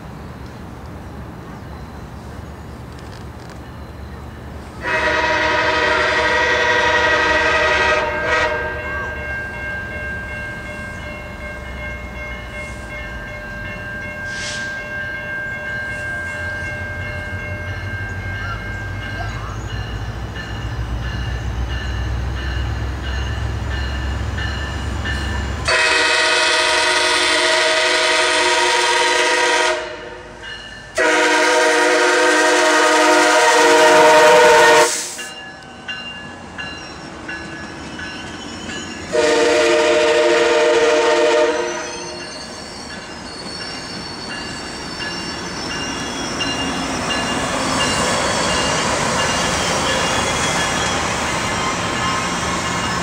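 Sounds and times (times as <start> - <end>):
diesel locomotive rumbling: 0.0 - 53.0
train horn blasts: 4.8 - 9.2, 25.6 - 30.4, 31.0 - 35.3, 39.1 - 42.3
train wheels clattering on rails: 41.4 - 53.0.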